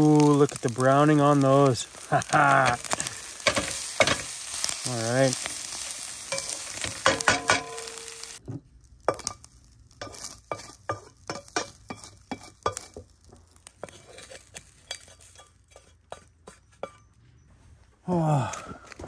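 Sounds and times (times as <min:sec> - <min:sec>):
vegetables sizzling in a pan: 0:00.0 - 0:15.8
spatula clinking and scraping pan: 0:03.4 - 0:08.4, 0:09.1 - 0:13.1, 0:13.8 - 0:17.2.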